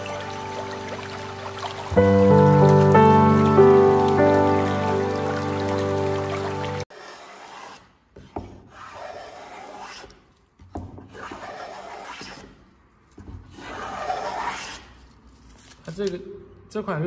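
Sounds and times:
music: 0.0s - 6.8s
hand plane shaving wood: 6.9s - 10.2s, 11.1s - 12.4s.

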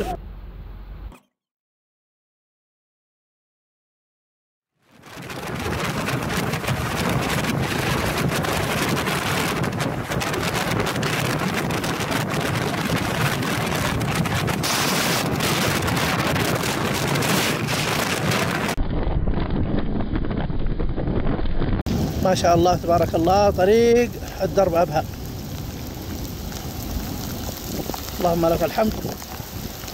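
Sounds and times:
tyre and wind noise: 4.9s - 29.9s
rain ticking on car: 5.0s - 14.4s, 24.2s - 29.9s.

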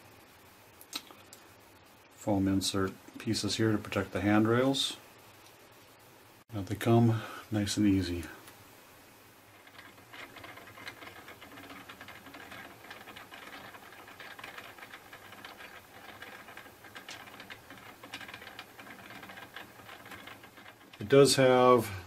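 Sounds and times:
motorized display stand humming and clicking: 9.6s - 21.2s.

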